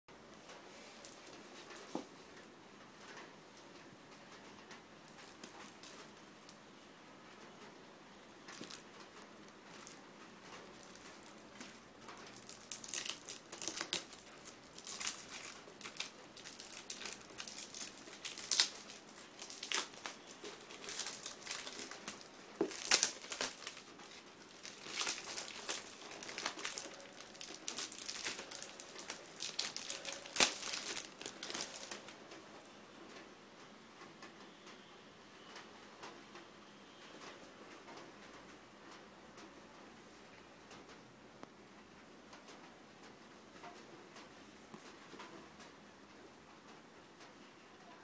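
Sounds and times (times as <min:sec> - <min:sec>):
plastic shrink-wrap crinkling: 0:00.7 - 0:02.1, 0:04.4 - 0:32.7.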